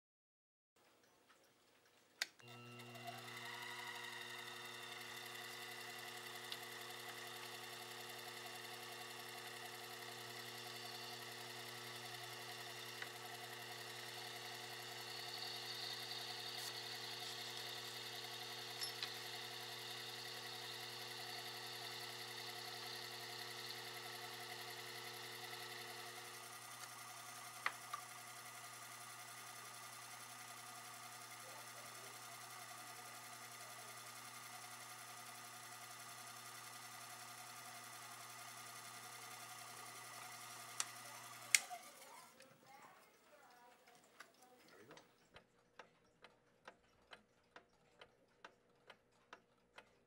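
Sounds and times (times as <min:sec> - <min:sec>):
motor switch click: 0:02.2 - 0:28.4, 0:39.7 - 0:42.1
lathe motor humming: 0:02.4 - 0:42.4.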